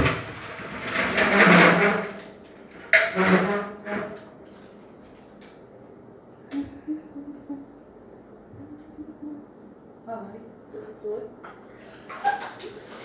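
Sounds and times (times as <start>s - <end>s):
metal stepladder scraping clatter: 0.0s - 5.2s.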